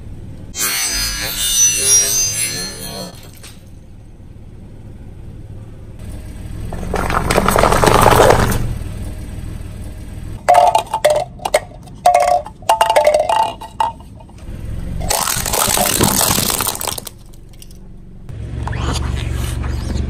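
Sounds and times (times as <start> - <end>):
car engine low rumble: 0.0 - 0.6, 3.2 - 20.0
glass baubles clinking: 10.5 - 14.4, 15.0 - 17.8
tyre crushing glass: 15.0 - 17.8.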